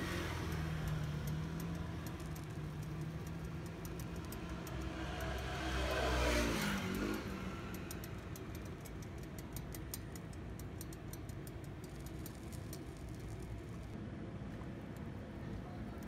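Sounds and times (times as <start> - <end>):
vehicle passing by: 0.0 - 9.0
faint regular ticks: 0.0 - 14.0.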